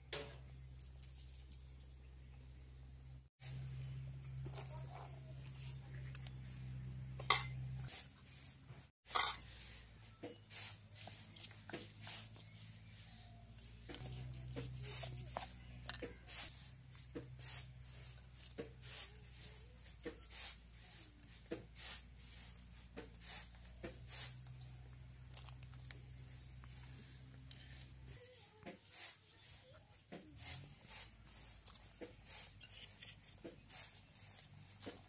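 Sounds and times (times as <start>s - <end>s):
stone grinder scraping and knocking: 31.7s - 34.0s.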